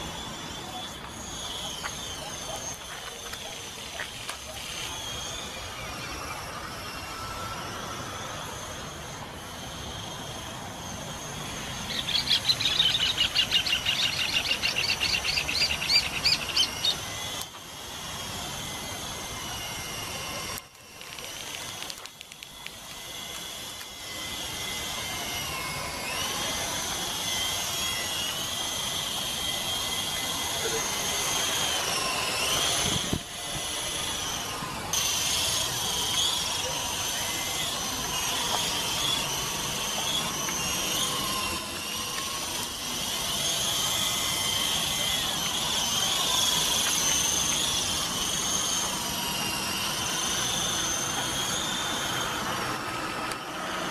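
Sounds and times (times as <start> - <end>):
rc helicopter whining: 0.0 - 53.9
bird chirping trill: 11.7 - 17.1.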